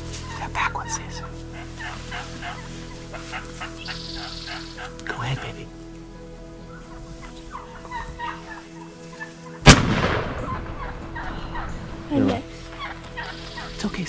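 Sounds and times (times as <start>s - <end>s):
turkeys clucking: 0.0s - 5.6s, 6.6s - 14.0s
shotgun shot: 9.6s - 10.9s.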